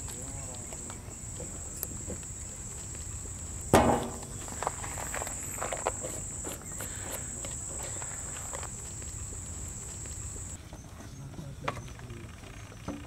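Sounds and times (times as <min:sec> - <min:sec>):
crickets trilling: 0:00.0 - 0:10.6
sharp knock with ring: 0:03.7 - 0:04.4.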